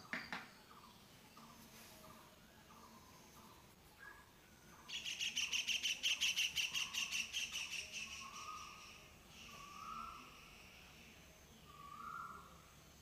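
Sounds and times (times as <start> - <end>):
bird chirping: 0.0 - 13.0.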